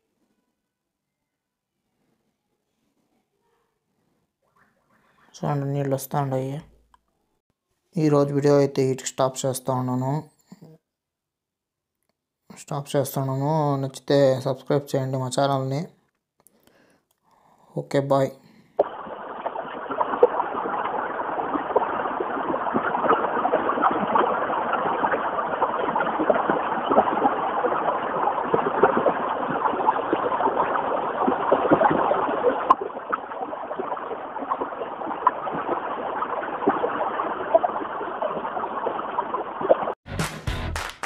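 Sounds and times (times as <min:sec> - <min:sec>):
stream splashing over rocks: 0:18.8 - 0:40.0.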